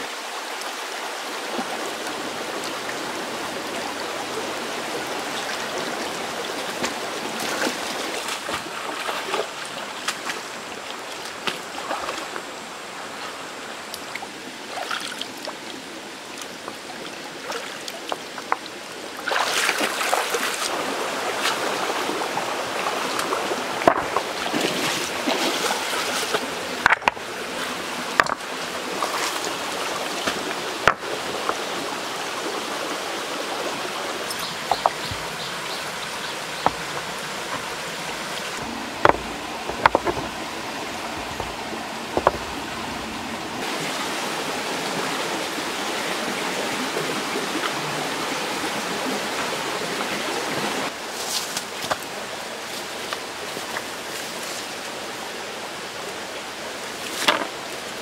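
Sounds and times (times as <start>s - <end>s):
shallow stream running: 0.0s - 58.0s
splashing and dripping water: 5.0s - 12.5s, 13.9s - 31.9s
stones knocking together: 23.8s - 24.3s, 26.8s - 27.2s, 28.2s - 28.4s, 30.3s - 31.6s, 34.3s - 35.2s, 39.0s - 40.4s, 41.1s - 42.5s, 57.2s - 57.5s.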